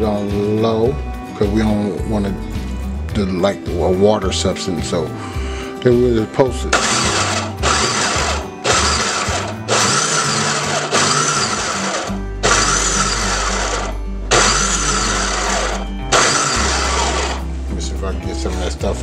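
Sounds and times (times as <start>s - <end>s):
food processor chopping in bursts: 6.8s - 17.4s.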